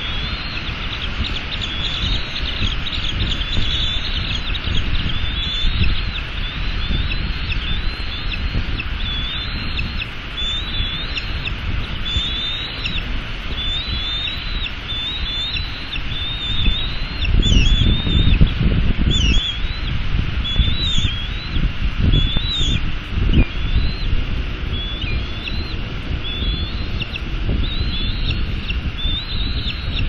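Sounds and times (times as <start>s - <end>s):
eaglets chirping: 0.0s - 30.0s
wind rumble on microphone: 0.0s - 30.0s.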